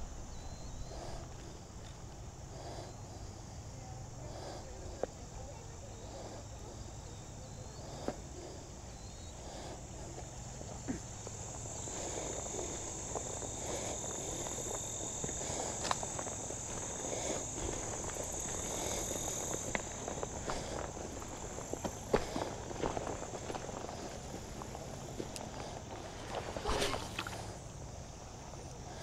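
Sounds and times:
high insect buzz: 0.0s - 29.0s
footsteps through grass and stones: 11.3s - 27.5s.

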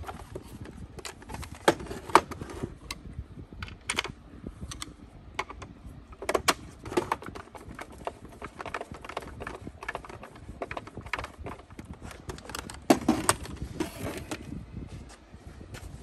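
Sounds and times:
plastic housing clicking: 3.6s - 14.5s.

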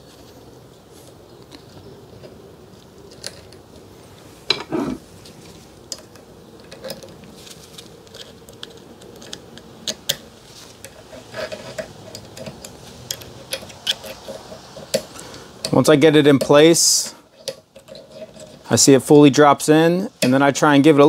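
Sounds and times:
metallic clicks and scrapes: 4.5s - 15.8s, 17.3s - 18.7s.

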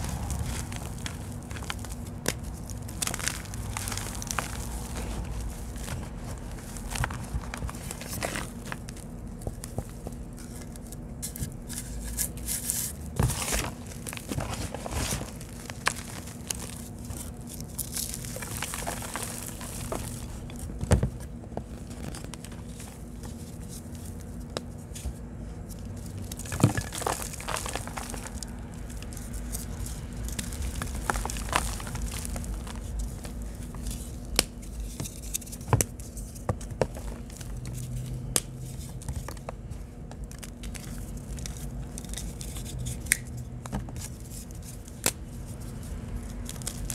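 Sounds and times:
pieces snapping: 0.0s - 23.9s, 26.0s - 46.9s
dry blocks crunching: 0.0s - 46.9s
powder pattering down: 14.0s - 20.6s, 26.1s - 33.9s.

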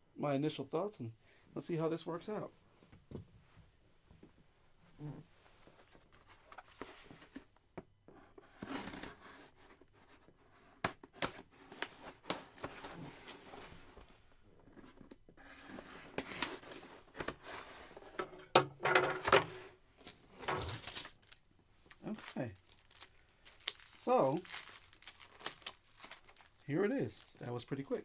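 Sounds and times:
cardboard and packing rustle: 19.4s - 28.0s.

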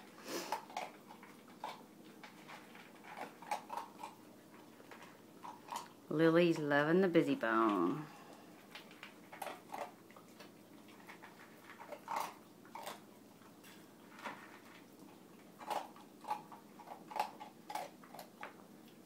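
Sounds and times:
dog crunching dry kibble: 0.0s - 6.7s, 7.5s - 19.0s.

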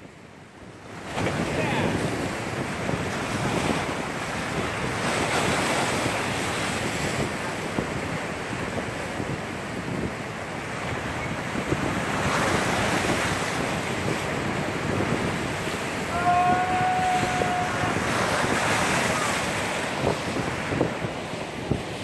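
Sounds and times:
sea surf washing against rocks: 0.6s - 22.0s
wind buffeting microphone: 0.6s - 22.0s
held high tone: 16.1s - 18.2s.

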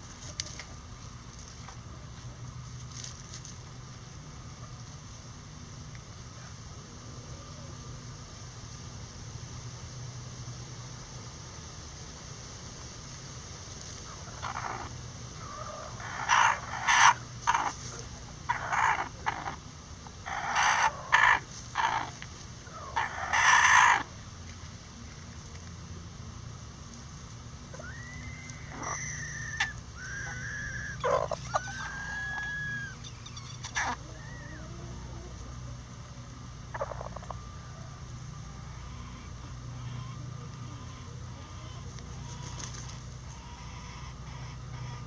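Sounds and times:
chickens making harsh calls: 14.0s - 24.2s, 27.7s - 35.6s, 36.6s - 45.0s.

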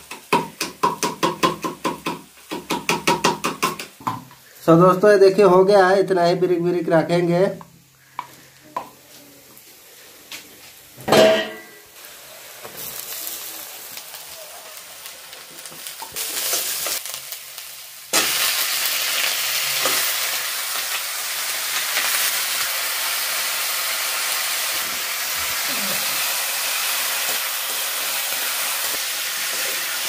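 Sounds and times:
onions sizzling in hot oil: 0.0s - 30.0s
chicken sizzling in hot oil: 11.7s - 30.0s.

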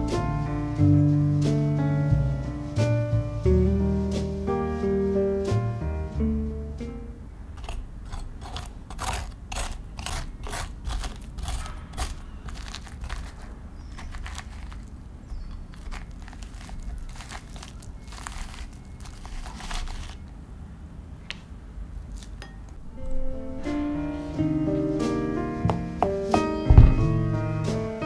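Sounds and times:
fork scraping squash pulp: 7.6s - 20.3s.

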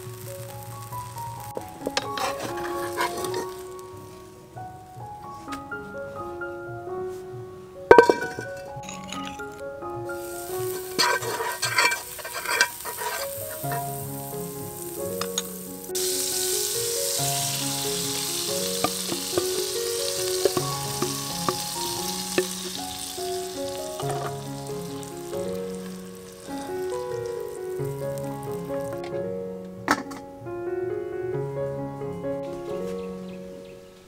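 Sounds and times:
food sizzling: 0.0s - 4.2s, 10.0s - 29.4s
utensil clinking and scraping: 1.8s - 3.6s, 7.9s - 9.6s, 10.2s - 13.9s, 17.9s - 27.4s.

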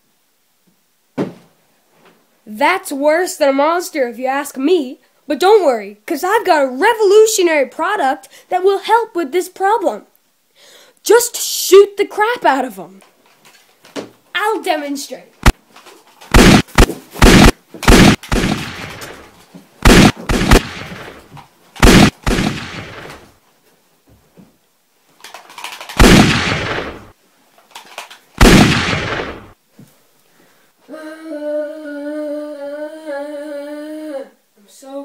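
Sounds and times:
gunshots: 16.3s - 23.3s, 25.7s - 27.2s, 28.4s - 29.6s.

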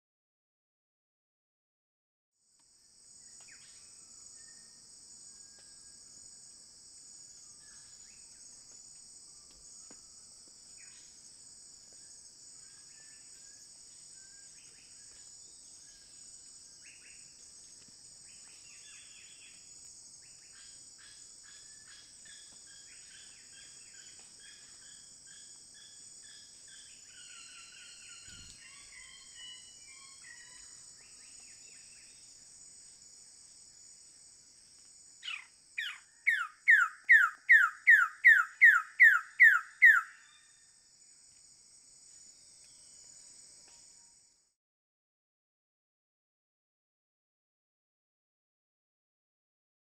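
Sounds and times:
high insect chorus: 2.5s - 44.6s
faint forest bird calls: 3.1s - 6.0s, 7.3s - 11.2s, 11.9s - 33.0s, 35.2s - 41.2s.

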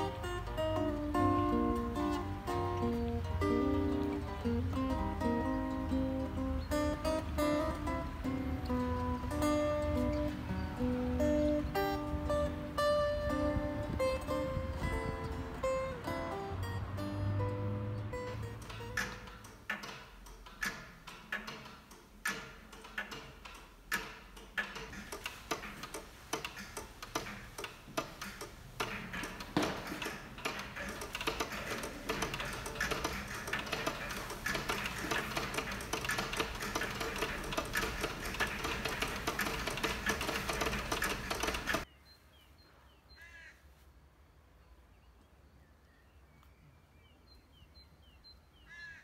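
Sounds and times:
pendulum clocks ticking: 15.4s - 41.9s.

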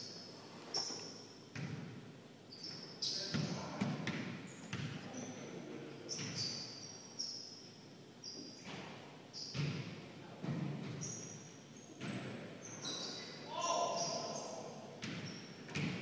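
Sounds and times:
sneakers squeaking: 0.0s - 16.0s
basketball bouncing: 1.5s - 2.0s, 3.3s - 4.9s, 9.5s - 11.0s, 15.0s - 16.0s.

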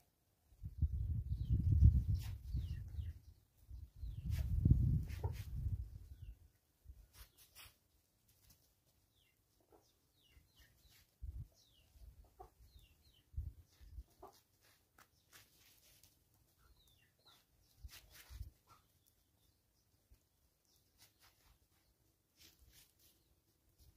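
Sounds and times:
chickens clucking: 9.2s - 15.1s.

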